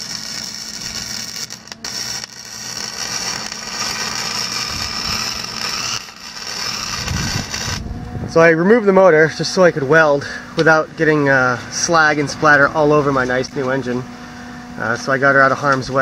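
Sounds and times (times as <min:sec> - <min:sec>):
arc welding hiss: 0:00.0 - 0:07.8.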